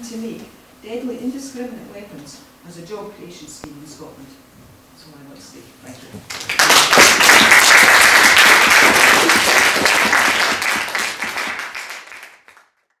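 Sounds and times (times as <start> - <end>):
audience applauding: 6.3 - 12.8.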